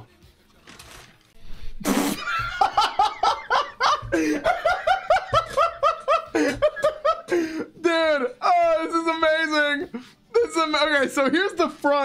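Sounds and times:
man laughing hard: 2.2s - 7.7s.

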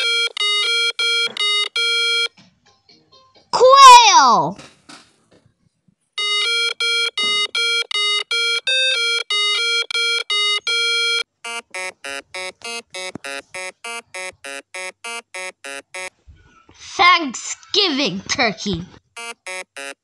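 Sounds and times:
electronic beeping tune: 6.2s - 16.1s, 19.2s - 20.0s.

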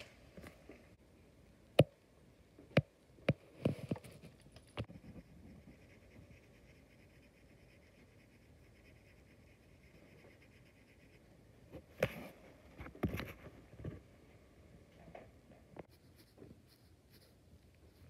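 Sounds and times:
pencil scratching on paper: 3.6s - 11.4s, 15.8s - 18.0s.

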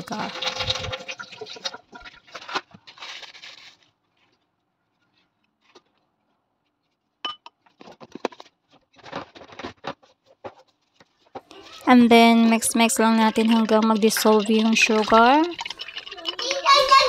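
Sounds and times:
metal spoon clinking on glass bowl: 7.3s - 7.5s
sugar rustling into bowl: 10.1s - 17.0s.

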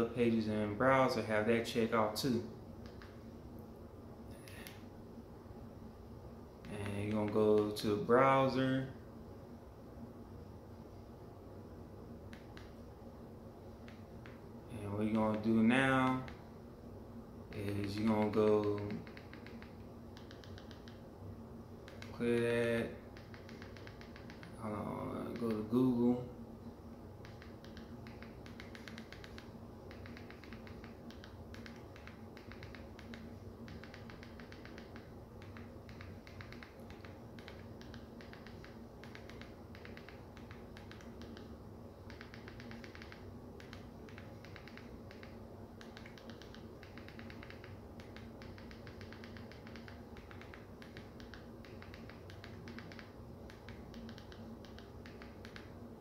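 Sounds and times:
faint steady hum: 0.0s - 56.0s
remote button clicks: 17.5s - 21.0s, 23.2s - 25.8s, 27.2s - 41.5s, 42.1s - 55.7s.

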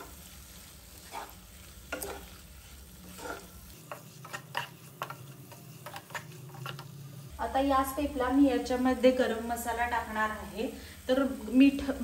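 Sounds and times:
wooden spatula scraping a pan: 0.0s - 7.3s
low sizzle of frying: 0.0s - 12.0s.

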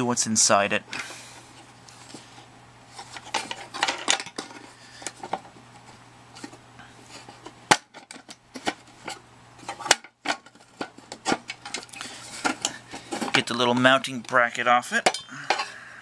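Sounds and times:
metal case clicks and clanks: 3.2s - 5.5s, 7.7s - 13.8s.

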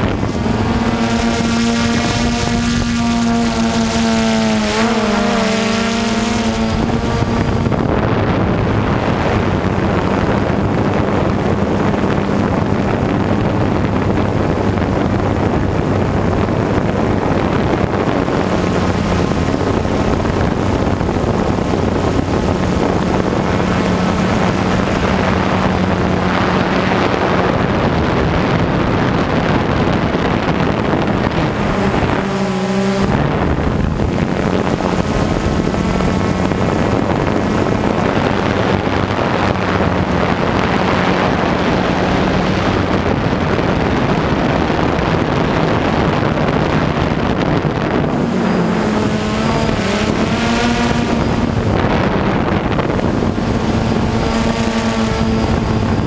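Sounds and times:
drone motors humming: 0.0s - 56.0s
wind on microphone: 0.0s - 56.0s.

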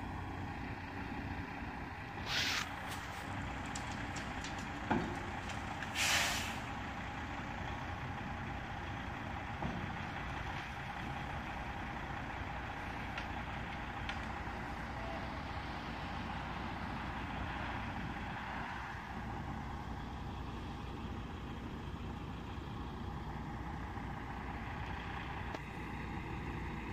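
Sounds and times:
distant diesel truck engine: 0.0s - 26.9s
air hiss: 2.2s - 2.8s, 5.9s - 6.7s.

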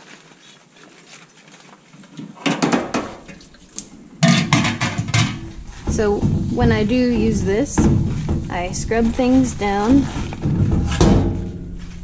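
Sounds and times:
metal parts clattering in steel sink: 4.2s - 11.6s.

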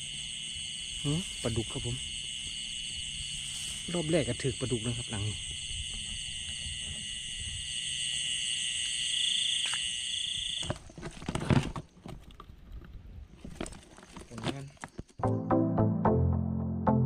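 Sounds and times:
high-pitched trilling night creatures: 0.0s - 10.6s
rustling: 3.3s - 4.1s, 10.6s - 15.2s.

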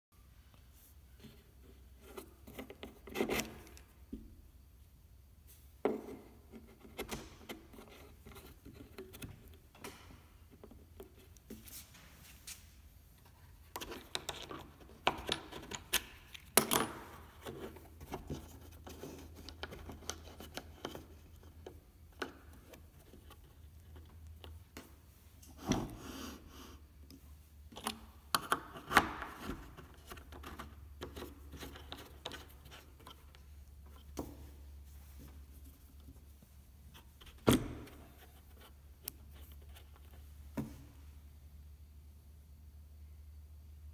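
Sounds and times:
faint low hum: 0.3s - 43.9s
knocks and clicks of handling parts: 5.8s - 11.6s, 13.2s - 26.0s, 27.7s - 36.2s.

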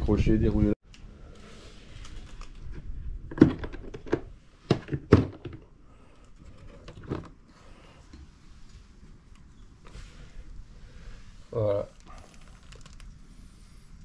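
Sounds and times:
plastic case knocks and clicks: 3.3s - 5.6s.

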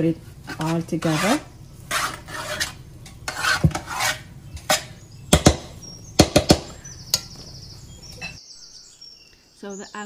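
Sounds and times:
metal spoon scraping dough: 0.4s - 5.0s.

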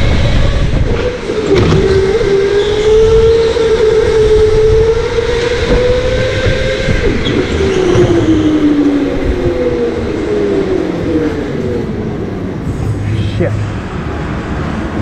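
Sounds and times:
electric go-kart motors whining: 0.0s - 15.0s
low rumble: 10.9s - 15.0s.

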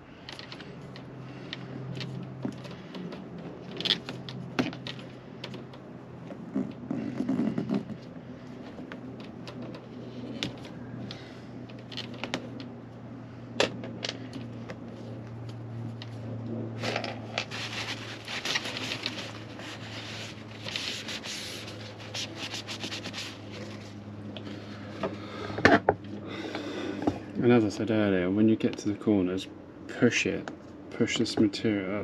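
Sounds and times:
low steady hum: 0.0s - 32.0s
trim scraping and rubbing: 16.8s - 24.0s.

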